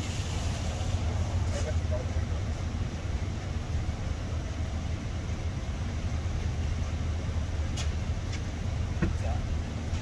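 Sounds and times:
motor vehicle rumble: 0:00.0 - 0:10.0.

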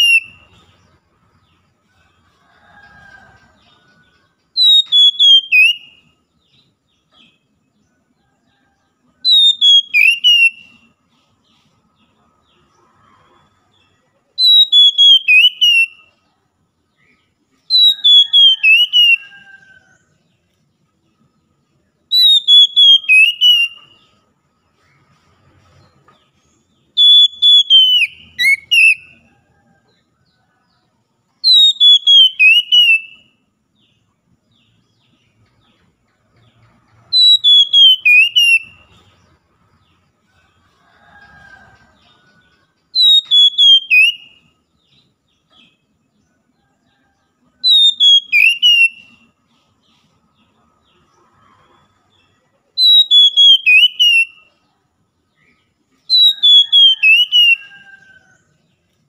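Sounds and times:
bird singing whistled phrases: 0:00.0 - 0:00.5, 0:04.6 - 0:06.0, 0:09.2 - 0:10.9, 0:14.4 - 0:16.1, 0:17.7 - 0:19.4, 0:22.1 - 0:24.0, 0:26.9 - 0:29.2, 0:31.4 - 0:33.3, 0:37.1 - 0:38.9, 0:43.0 - 0:44.4, 0:47.6 - 0:49.2, 0:52.8 - 0:54.4, 0:56.1 - 0:57.9.

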